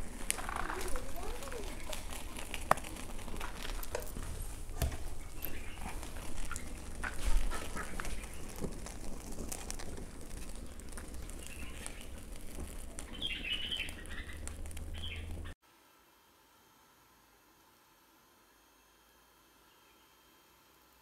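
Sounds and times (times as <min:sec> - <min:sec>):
caged birds chirping: 0:00.0 - 0:15.6
charcoal fire crackling: 0:00.0 - 0:15.6
stick knocking coals: 0:00.0 - 0:15.6.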